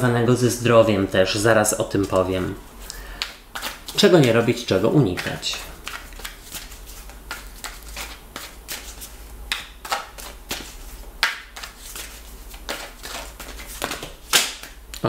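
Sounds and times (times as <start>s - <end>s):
deck of cards being shuffled: 3.2s - 15.0s.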